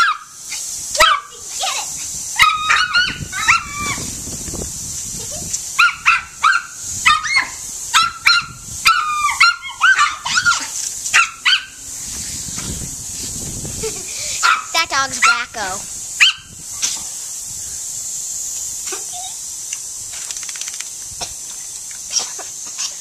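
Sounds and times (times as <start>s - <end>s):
small dog barking and yipping: 0.0s - 1.6s, 2.4s - 4.0s, 5.8s - 11.8s, 14.4s - 15.6s, 16.2s - 16.5s
water spray hissing: 0.0s - 23.0s.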